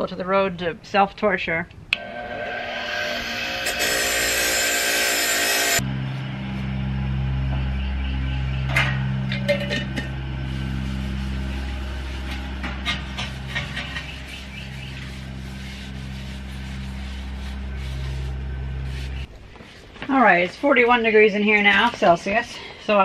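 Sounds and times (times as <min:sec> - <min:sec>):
low hum: 0:01.8 - 0:19.6
cloth rubbing on metal helmet: 0:10.3 - 0:19.9.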